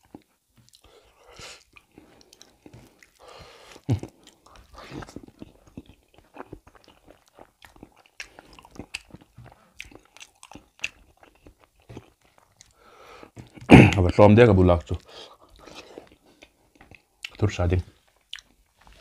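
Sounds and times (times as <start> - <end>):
wet chewing smacks: 1.6 - 12.8.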